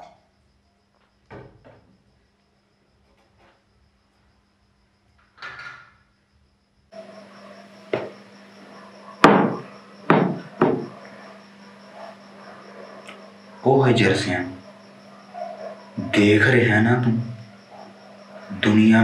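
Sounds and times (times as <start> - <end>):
faint steady hum: 0.0 - 19.0
sharp knocks: 7.9 - 8.2, 9.2 - 10.9.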